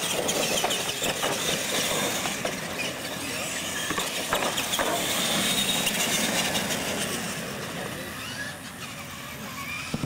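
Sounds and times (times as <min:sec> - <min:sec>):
toy truck motors running: 0:00.0 - 0:10.0
trucks landing knocks: 0:03.8 - 0:06.1.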